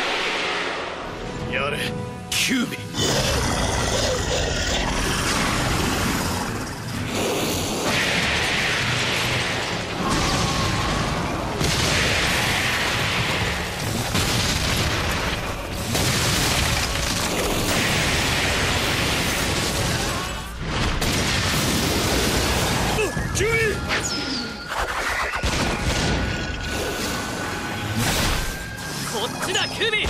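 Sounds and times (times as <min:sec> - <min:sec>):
booms: 0:05.1 - 0:23.7.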